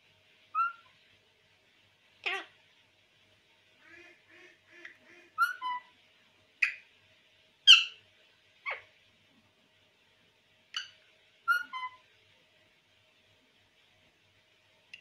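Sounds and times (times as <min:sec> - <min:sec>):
parakeet calling: 0:00.6 - 0:00.9, 0:03.8 - 0:05.9, 0:07.7 - 0:08.0, 0:08.6 - 0:08.9, 0:10.8 - 0:12.0.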